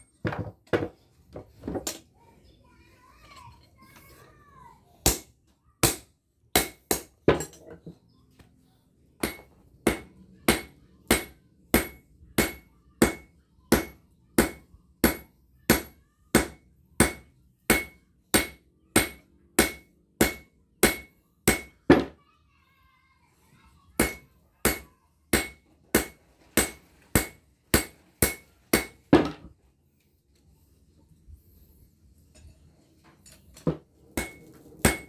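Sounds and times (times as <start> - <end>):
hammer striking anvil: 5.0 - 7.8, 9.2 - 22.1, 24.0 - 29.4, 33.6 - 35.0.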